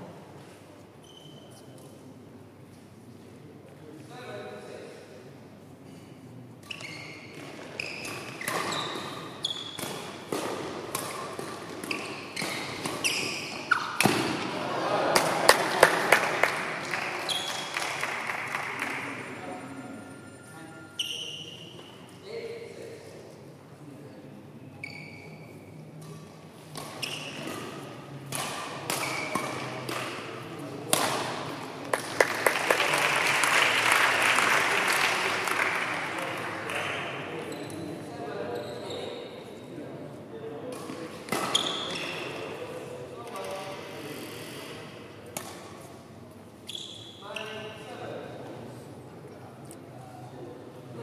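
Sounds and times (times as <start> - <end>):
shoes squeaking on court: 1.0 - 2.0, 6.6 - 14.4, 17.2 - 17.9, 20.8 - 22.1, 24.8 - 27.8, 37.4 - 39.3, 41.3 - 42.5, 46.6 - 47.7
rackets hitting shuttlecock: 9.8 - 14.6, 26.0 - 32.2, 40.7 - 42.0, 45.4 - 45.8
racket striking shuttlecock: 13.7 - 14.5, 26.0 - 30.3, 30.9 - 31.4.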